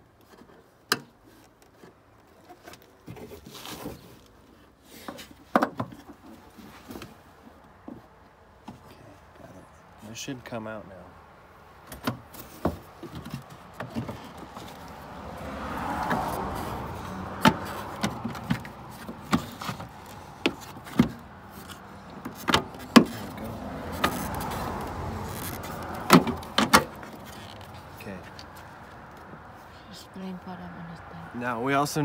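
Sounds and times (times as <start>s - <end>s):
plastic rubbing: 16.2s - 28.6s.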